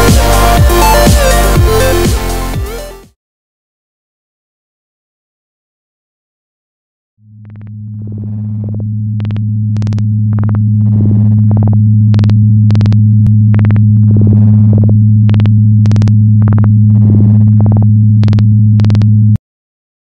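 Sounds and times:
deep synth bass drone: 0:00.0 - 0:03.0, 0:07.2 - 0:19.4.

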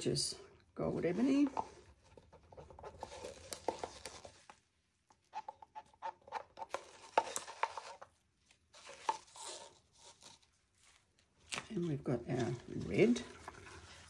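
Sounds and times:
stick scraping plastic cup: 0:01.1 - 0:08.2, 0:08.8 - 0:10.6, 0:12.3 - 0:14.0.

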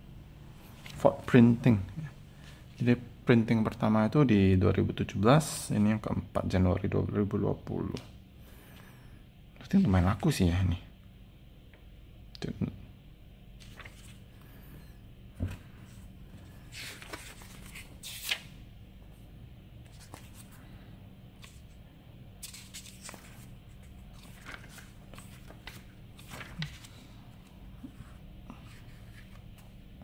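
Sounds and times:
faint low hum: 0:00.0 - 0:30.0
pages rustling: 0:13.6 - 0:14.6, 0:15.4 - 0:18.5, 0:19.8 - 0:20.7, 0:21.4 - 0:21.8, 0:22.4 - 0:29.8.

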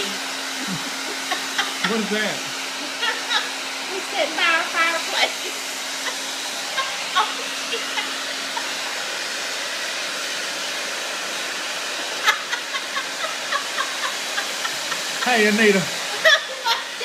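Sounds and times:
hair dryer blowing air: 0:00.0 - 0:17.0
woman laughing: 0:00.6 - 0:09.0, 0:12.2 - 0:15.3, 0:15.9 - 0:17.0.

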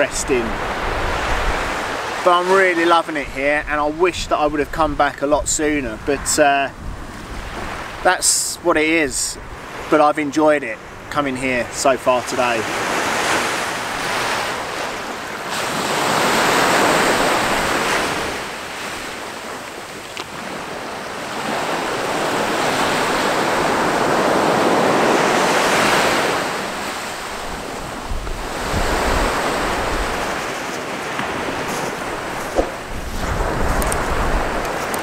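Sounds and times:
wind buffeting microphone: 0:00.0 - 0:02.1, 0:03.2 - 0:08.1, 0:14.9 - 0:35.0
small waves breaking on beach: 0:00.0 - 0:04.0, 0:05.6 - 0:08.2, 0:08.8 - 0:35.0.

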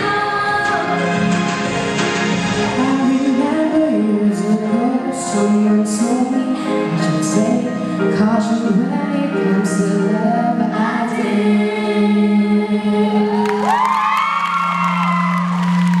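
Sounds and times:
women singing in harmony: 0:00.0 - 0:01.2, 0:02.8 - 0:13.8
audience cheering and clapping: 0:13.2 - 0:16.0.

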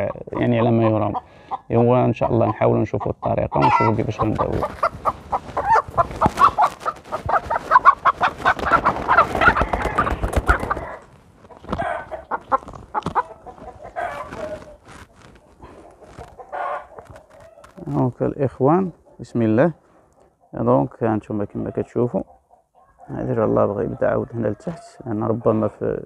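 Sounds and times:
chicken squawking and cackling: 0:00.0 - 0:18.0, 0:21.5 - 0:25.7
wings flapping: 0:04.0 - 0:18.0.

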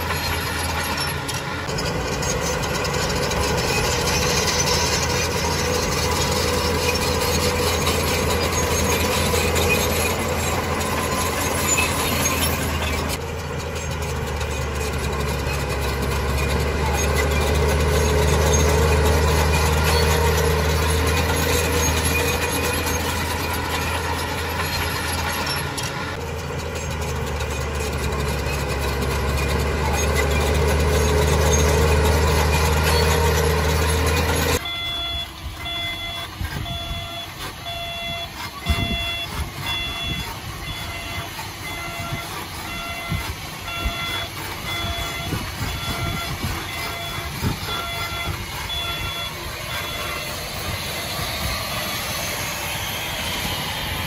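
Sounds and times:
heavy diesel engine running: 0:00.0 - 0:54.0
reversing alarm beeping: 0:29.4 - 0:54.0.

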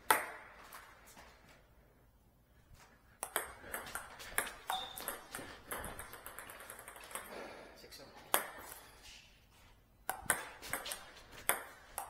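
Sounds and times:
table tennis ball clicking: 0:03.2 - 0:07.3.

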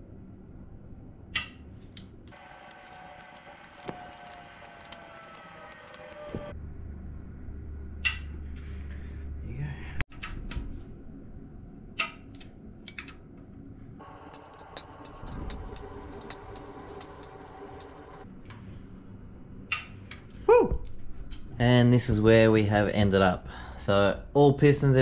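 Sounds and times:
quick ratchet clicks: 0:14.0 - 0:18.2.

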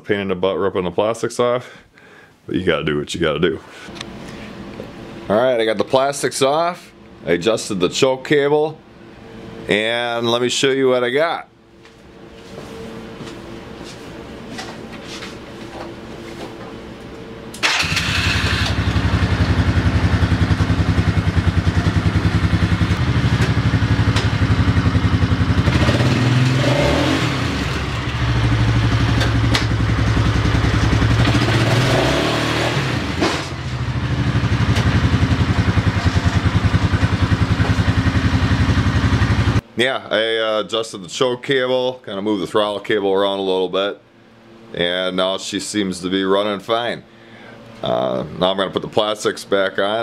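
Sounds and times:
atv engine running: 0:17.6 - 0:39.6.

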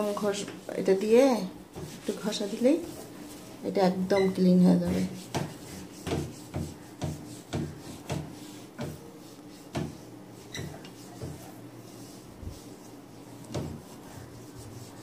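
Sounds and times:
sponge scrubbing glass: 0:04.8 - 0:15.0.

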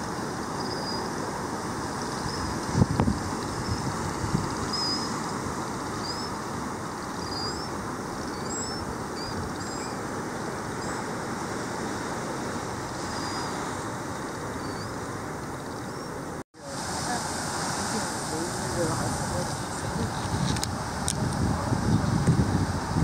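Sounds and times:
surf: 0:00.0 - 0:23.0
wind: 0:00.0 - 0:23.0
small birds chirping: 0:00.6 - 0:01.1, 0:04.5 - 0:05.2, 0:05.9 - 0:06.4, 0:07.0 - 0:11.1, 0:13.1 - 0:13.6, 0:14.2 - 0:16.4.

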